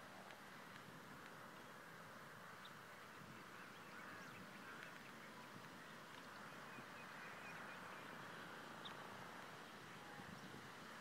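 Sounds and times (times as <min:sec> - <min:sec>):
low steady hiss: 0:00.0 - 0:11.0
distant bird chirps: 0:02.5 - 0:11.0.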